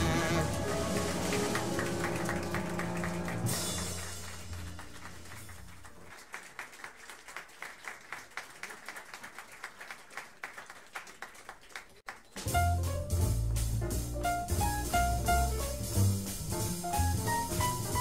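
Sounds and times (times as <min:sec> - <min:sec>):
jazz quartet chord: 0:00.0 - 0:05.3, 0:12.5 - 0:18.0
double bass: 0:00.0 - 0:05.8, 0:12.5 - 0:18.0
audience clapping: 0:00.0 - 0:12.6.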